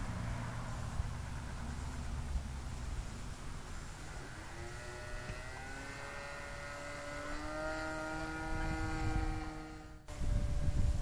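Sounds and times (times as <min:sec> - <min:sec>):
model plane engine buzzing: 0:03.0 - 0:11.0
wind rumble on microphone: 0:06.2 - 0:11.0.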